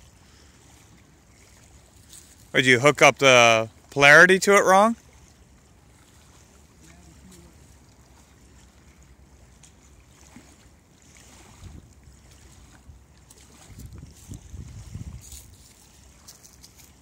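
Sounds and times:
small waves lapping: 0.0s - 17.0s
wind on microphone: 11.2s - 17.0s.

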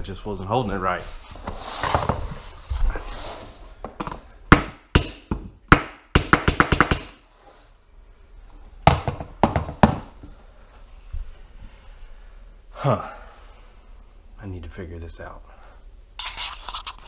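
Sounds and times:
nail gun firing: 4.5s - 7.2s.

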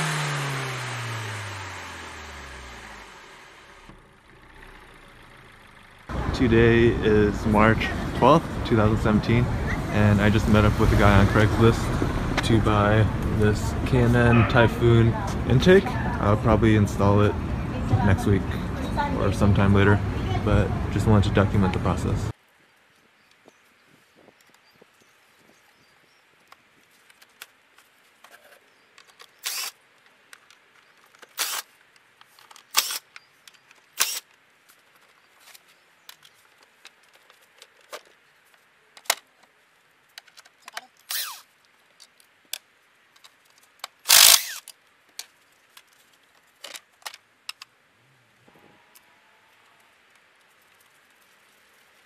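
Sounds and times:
clicks and knocks of parts: 28.2s - 47.7s.

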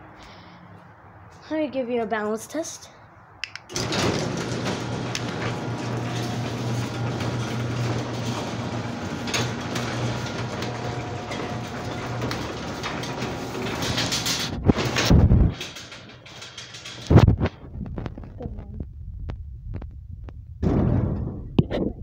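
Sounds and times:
garage door opener motor hum: 3.7s - 17.2s
garage door clunk: 3.7s - 17.3s, 20.6s - 21.6s.

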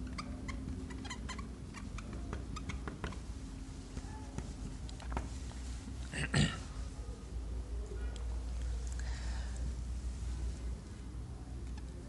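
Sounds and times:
marker squeaking on whiteboard: 0.0s - 5.3s
faint steady hum: 0.0s - 12.0s.

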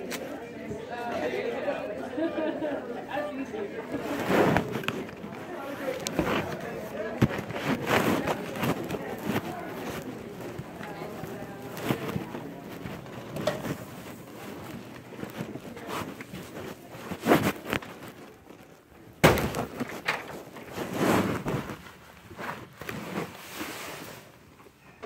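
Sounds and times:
footsteps: 3.8s - 24.2s
camera rustling and bumping: 4.0s - 21.8s.

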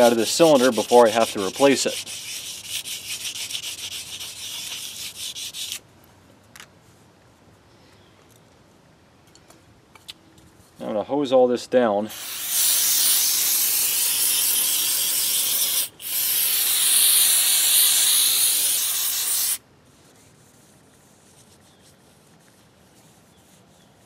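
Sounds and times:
rag rubbing on metal rod: 0.0s - 5.8s
aerosol spray can hissing: 12.1s - 19.6s.

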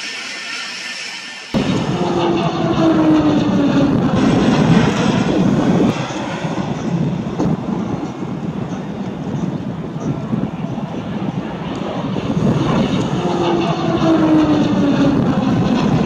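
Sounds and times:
turboprop aircraft passing: 0.0s - 16.0s.

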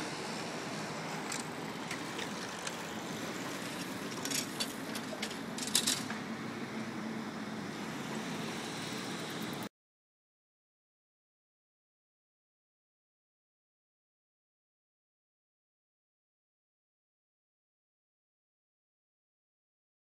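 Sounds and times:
street traffic: 0.0s - 9.7s
sharp clicks and rattles: 3.7s - 6.2s.

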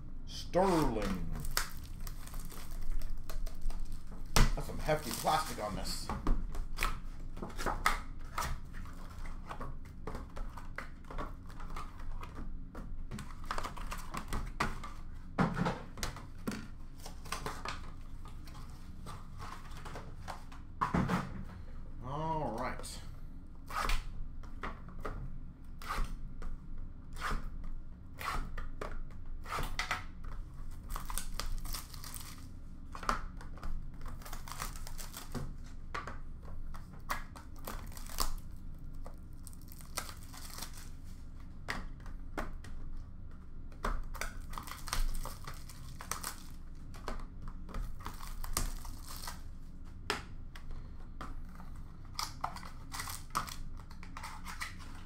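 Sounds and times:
plastic wrapping crinkling: 0.6s - 6.0s, 30.8s - 32.5s, 34.0s - 35.4s, 37.6s - 38.5s, 39.1s - 41.1s, 44.2s - 46.7s, 47.8s - 49.5s.

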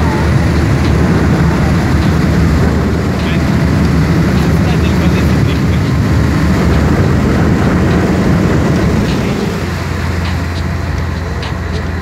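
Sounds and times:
boat engine rumbling: 0.0s - 12.0s
wake water churning: 0.0s - 12.0s.

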